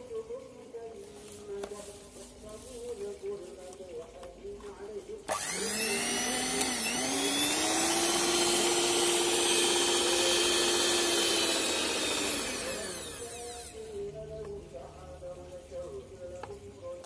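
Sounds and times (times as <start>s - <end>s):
electric hand mixer whining: 5.3s - 14.1s.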